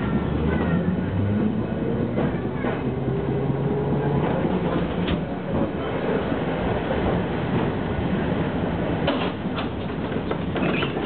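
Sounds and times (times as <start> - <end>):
tram rumble and motor hum: 0.0 - 11.0
wheels clicking over track: 8.9 - 11.0.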